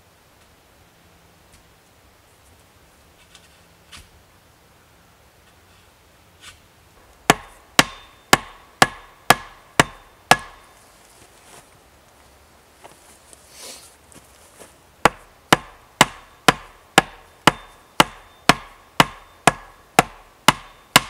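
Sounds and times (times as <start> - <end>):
hatchet striking wooden stake: 7.2 - 10.7, 15.0 - 21.0.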